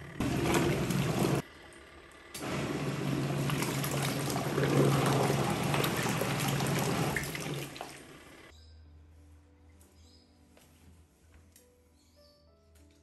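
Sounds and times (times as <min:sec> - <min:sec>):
small motor humming: 0:00.0 - 0:07.2
water and clothes sloshing: 0:00.2 - 0:01.4, 0:02.4 - 0:08.3.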